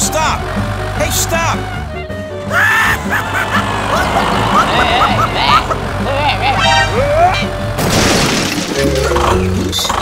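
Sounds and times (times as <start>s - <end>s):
background music low notes: 0.0s - 8.0s.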